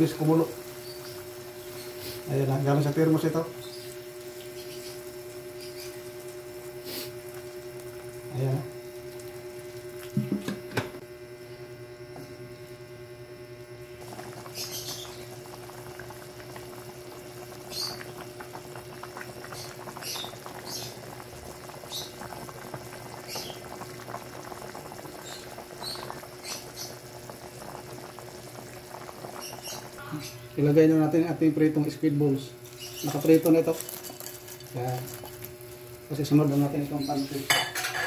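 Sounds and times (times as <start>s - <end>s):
hot water pouring: 0.0s - 10.4s, 14.0s - 30.0s, 30.6s - 38.0s
broth bubbling with pops: 3.5s - 10.8s, 14.0s - 30.2s.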